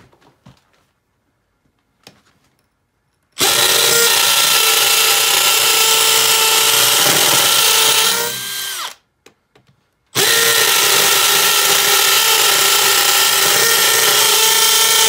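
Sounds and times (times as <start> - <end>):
hammer drill boring into concrete: 3.4 - 9.0, 10.2 - 15.0.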